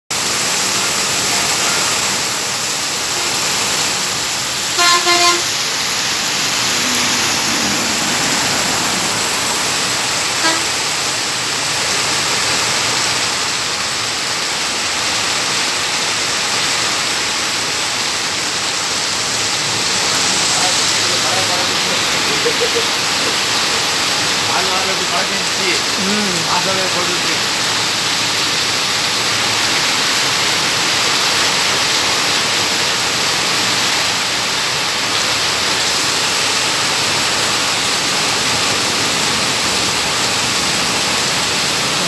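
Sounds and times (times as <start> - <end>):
heavy rain pouring: 0.1 - 42.0
vehicle horn blasts: 4.7 - 5.6, 10.3 - 10.8.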